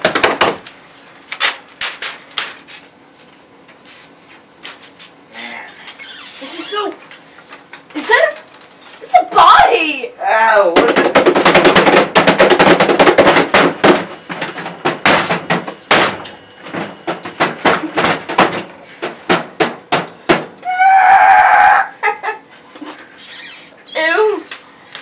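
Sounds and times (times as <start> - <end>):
rapid banging and knocking: 10.7 - 16.2, 16.8 - 20.5.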